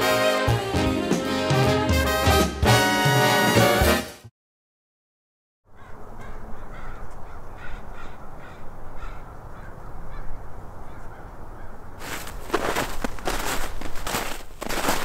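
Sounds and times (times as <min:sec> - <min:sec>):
crows cawing: 0:05.7 - 0:11.9.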